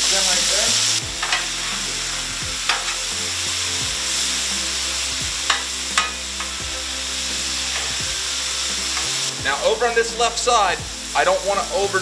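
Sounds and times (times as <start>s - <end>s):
meat and vegetables sizzling on griddle: 0.0s - 12.0s
metal spatula scraping steel plate: 1.0s - 3.7s, 5.5s - 6.6s, 7.6s - 8.0s.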